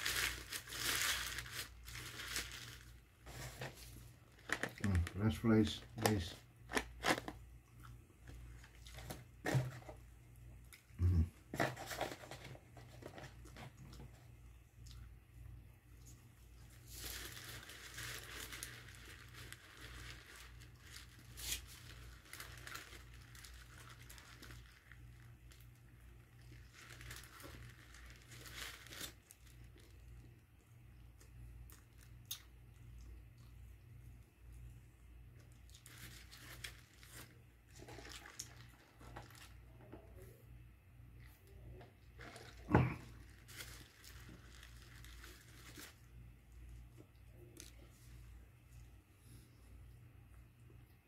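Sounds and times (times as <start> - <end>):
paper packaging crinkling: 0.0 - 7.4, 8.3 - 10.0, 11.5 - 14.3, 16.6 - 30.4, 35.5 - 39.8, 41.5 - 46.7
chewing fries: 16.8 - 33.9, 35.3 - 39.6.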